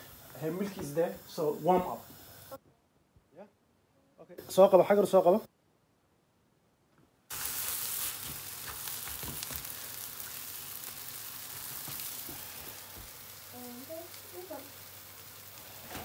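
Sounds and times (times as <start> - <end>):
pancake sizzling in a frying pan: 0.0 - 2.6, 7.3 - 16.0.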